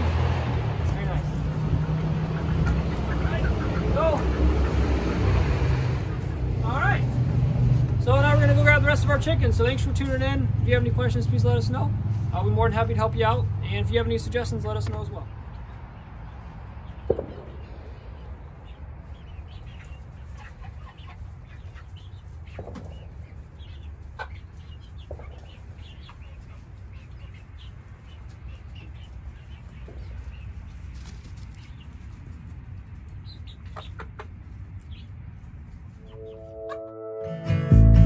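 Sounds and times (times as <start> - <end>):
young hens clucking and peeping: 0.0 - 37.0.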